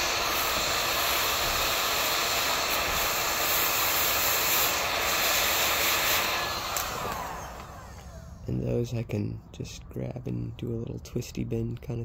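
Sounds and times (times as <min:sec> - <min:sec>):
heat gun blowing air: 0:00.0 - 0:08.7
fan winding down: 0:00.0 - 0:12.0.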